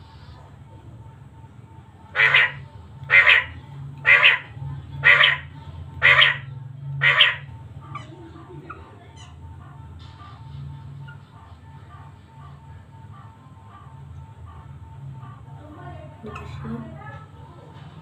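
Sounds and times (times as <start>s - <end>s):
low steady hum: 0.0s - 18.0s
quail calling: 2.1s - 8.1s.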